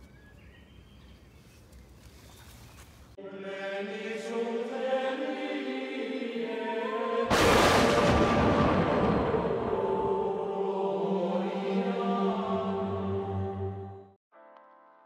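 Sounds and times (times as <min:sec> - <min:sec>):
faint woodland ambience: 0:00.0 - 0:03.2
choir singing held chords: 0:03.2 - 0:14.2.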